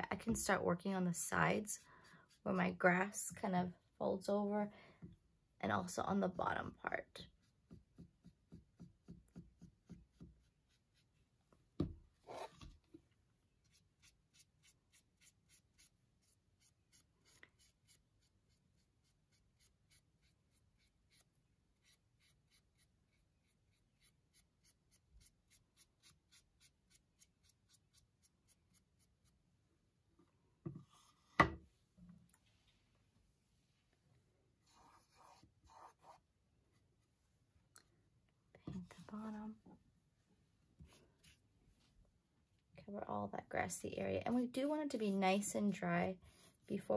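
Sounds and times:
paintbrush scraping canvas: 12.2s - 13.0s, 13.6s - 29.4s, 34.5s - 37.3s, 40.8s - 42.0s, 44.2s - 46.9s.

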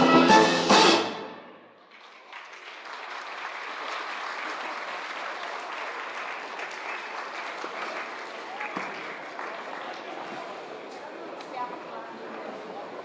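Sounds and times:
crowd applauding: 1.8s - 10.8s.

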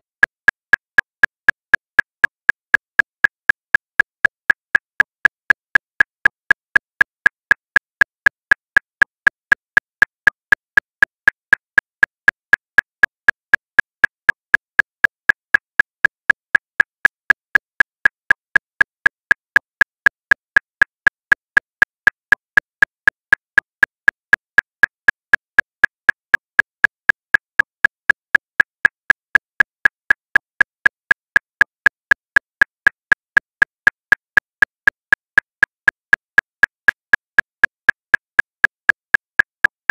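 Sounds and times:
metronome clicking: 39.4s - 39.9s.

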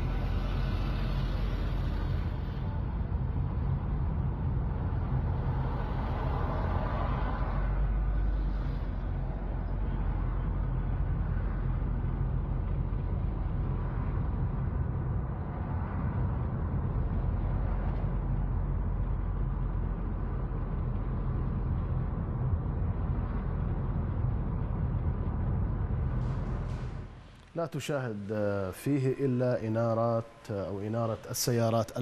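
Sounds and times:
car traffic rumble: 0.0s - 32.0s.

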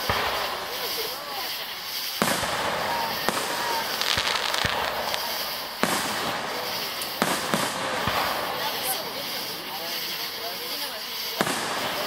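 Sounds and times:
firework crackling: 0.0s - 12.0s
firework shells bursting: 0.0s - 12.0s.

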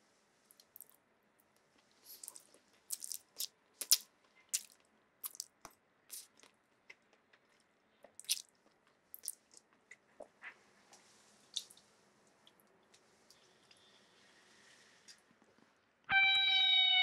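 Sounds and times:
open-mouthed chewing and slurping: 2.0s - 5.5s, 6.1s - 6.5s, 8.2s - 8.6s.

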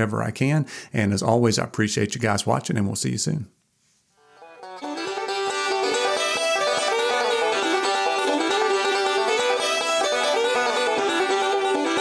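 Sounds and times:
bluegrass music: 4.2s - 12.0s
banjo picking quick notes: 4.3s - 12.0s.

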